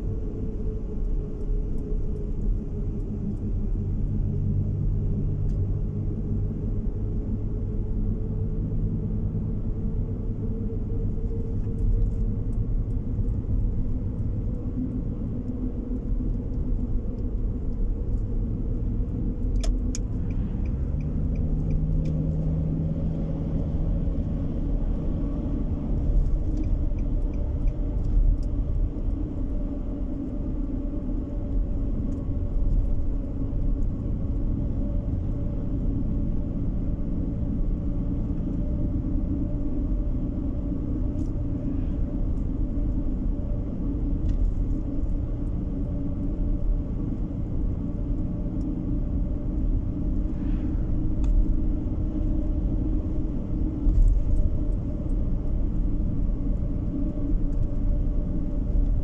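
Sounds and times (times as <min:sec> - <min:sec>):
car engine and road noise: 0:00.0 - 0:59.0
faint ticks: 0:19.4 - 0:22.2, 0:26.1 - 0:29.2.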